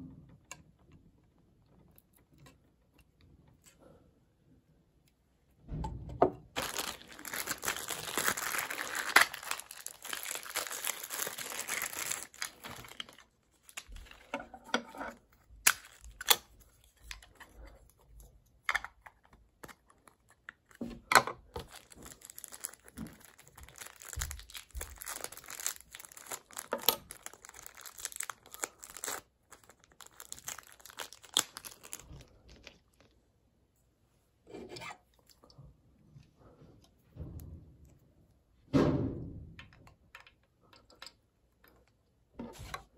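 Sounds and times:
plastic packaging crinkling: 0:06.5 - 0:14.3, 0:15.2 - 0:17.4, 0:21.4 - 0:33.2
plastic parts clicking: 0:06.6 - 0:17.7.

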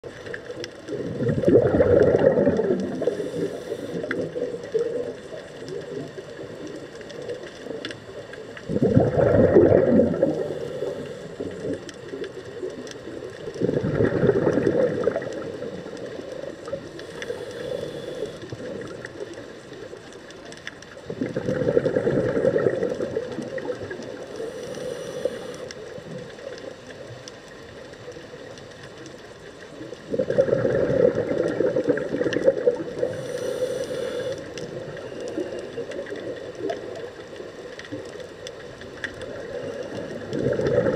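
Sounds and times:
underwater hiss: 0:00.2 - 0:07.8, 0:08.6 - 0:12.2, 0:13.4 - 0:19.5, 0:21.1 - 0:26.4, 0:30.1 - 0:37.6
exhaled bubble bursts underwater: 0:00.9 - 0:06.1, 0:08.6 - 0:11.8, 0:13.4 - 0:16.8, 0:21.1 - 0:24.3, 0:30.0 - 0:37.0, 0:39.4 - 0:40.9.

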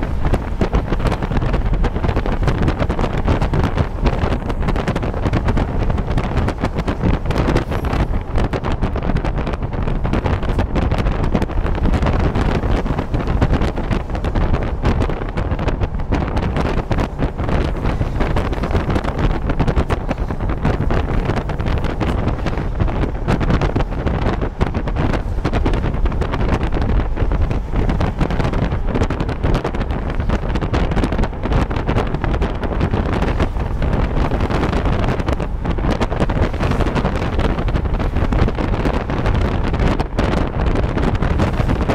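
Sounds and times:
car road noise: 0:00.0 - 0:41.9
wind buffeting microphone: 0:00.0 - 0:41.9.

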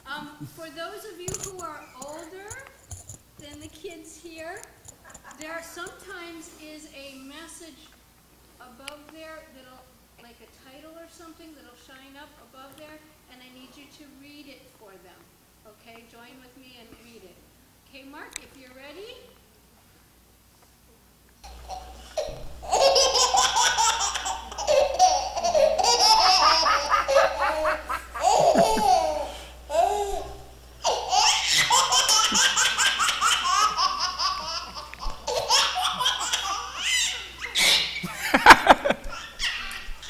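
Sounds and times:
high-pitched breathless laughter: 0:21.8 - 0:32.8, 0:36.6 - 0:40.0.

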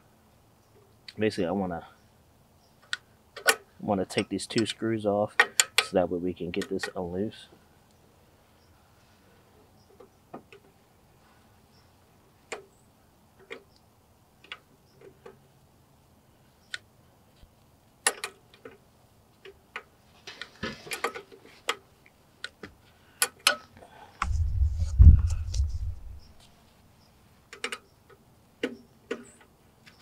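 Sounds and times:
low rumble: 0:24.2 - 0:26.4.

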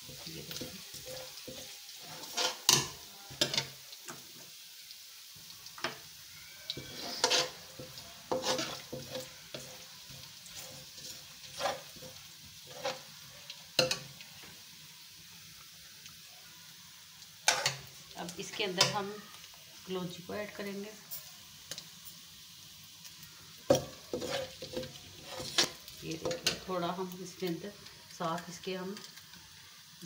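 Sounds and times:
spoon scraping and knocking a pan: 0:00.0 - 0:03.8, 0:06.8 - 0:13.1, 0:13.8 - 0:14.1, 0:17.4 - 0:17.9, 0:23.7 - 0:26.7
garlic sizzling in hot oil: 0:00.0 - 0:30.0.

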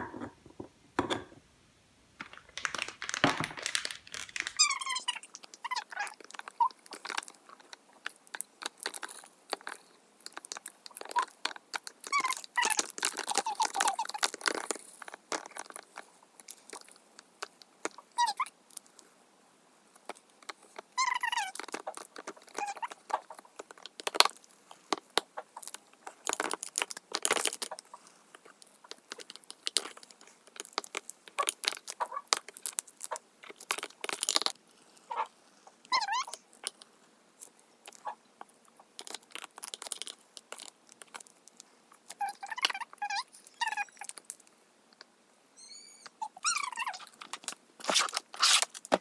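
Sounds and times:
gel beads crackling and squelching: 0:02.2 - 0:19.1, 0:19.9 - 0:45.1, 0:45.7 - 0:49.0
short squeaky squelches: 0:04.6 - 0:06.7, 0:45.6 - 0:47.2.

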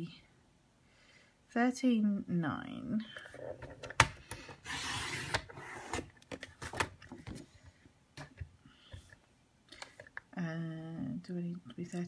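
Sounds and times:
blade scraping through cardstock: 0:04.6 - 0:06.0.

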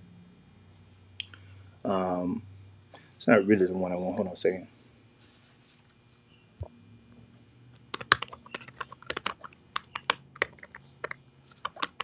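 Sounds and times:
keyboard typing: 0:07.9 - 0:12.0.

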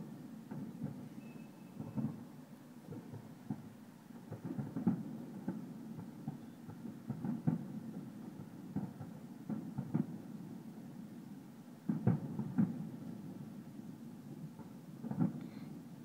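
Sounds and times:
distant fireworks bursting: 0:00.0 - 0:16.0.

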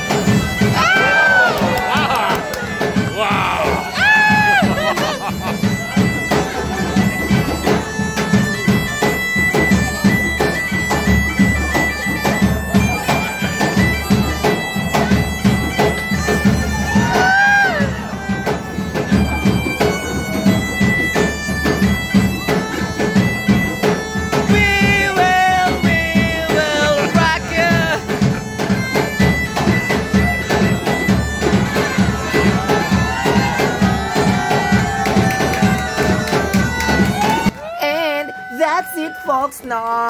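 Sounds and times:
bagpipe melody with drone: 0:00.0 - 0:37.6
drum beat: 0:00.0 - 0:37.6.

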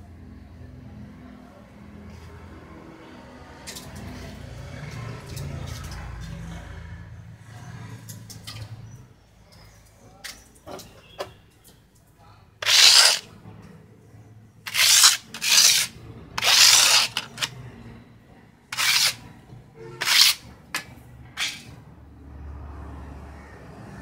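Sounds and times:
scraper scraping plaster mould: 0:12.6 - 0:13.3, 0:14.7 - 0:17.5, 0:18.7 - 0:19.3, 0:20.0 - 0:21.8.

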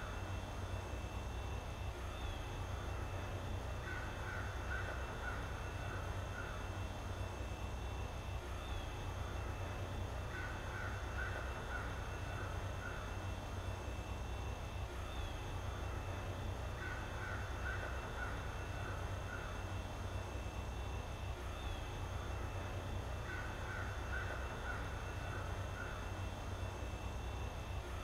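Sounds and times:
steady low hum: 0:00.0 - 0:28.0
bird cawing: 0:03.7 - 0:06.8, 0:10.2 - 0:13.3, 0:16.7 - 0:19.8, 0:23.1 - 0:26.3.

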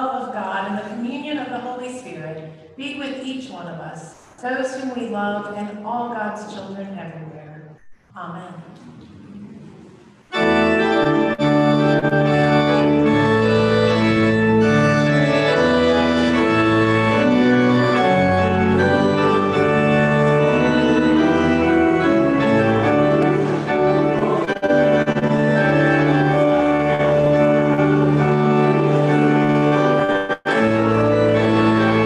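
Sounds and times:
church organ playing held chords: 0:10.3 - 0:32.0.

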